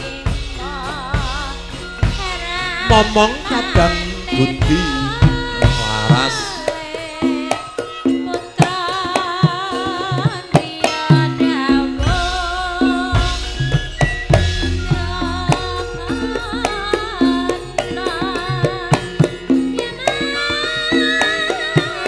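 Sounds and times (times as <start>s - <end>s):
deep bass notes: 0.0s - 6.9s, 11.7s - 17.2s
hand drums playing dance rhythm: 0.0s - 22.0s
woman singing: 0.0s - 22.0s.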